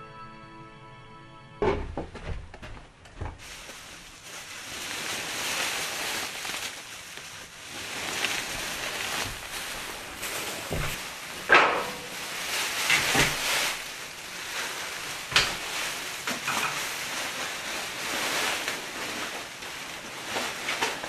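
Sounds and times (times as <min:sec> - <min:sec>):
dull thumps: 0:01.6 - 0:03.8
plastic wrapping crinkling: 0:03.4 - 0:21.0.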